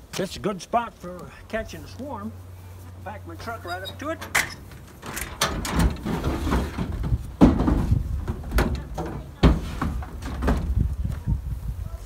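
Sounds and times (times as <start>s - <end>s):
tailgate being lowered: 3.7s - 10.8s
wooden boxes knocking and thumping: 5.4s - 10.8s.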